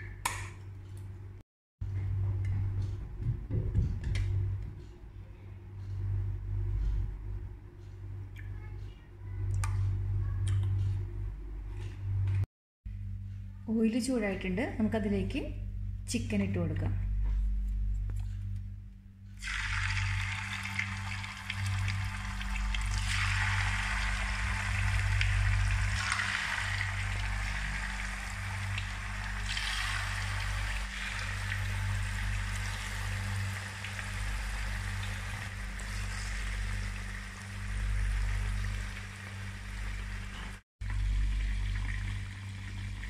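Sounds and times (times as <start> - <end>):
chicken frying in hot oil: 19.4 - 43.0.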